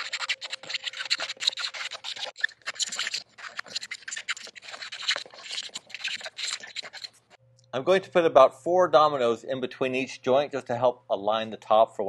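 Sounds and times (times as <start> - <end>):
hand scraper scratching wood: 0.0 - 7.4.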